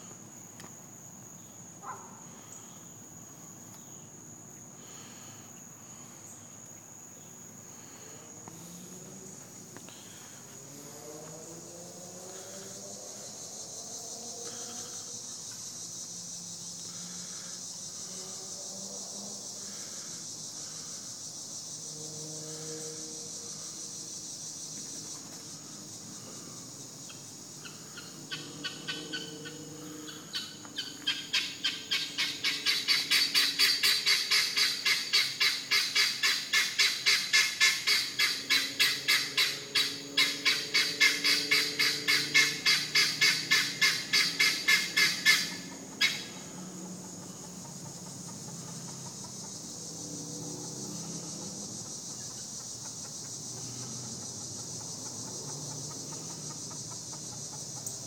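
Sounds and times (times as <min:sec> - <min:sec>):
insect drone: 0:00.0 - 0:58.0
guinea fowl calling: 0:27.6 - 0:46.4.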